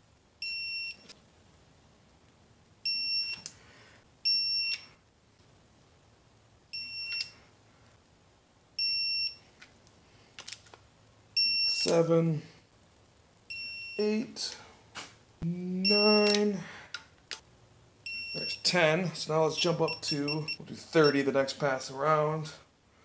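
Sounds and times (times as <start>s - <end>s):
torque wrench beeping: 6.8s - 7.4s.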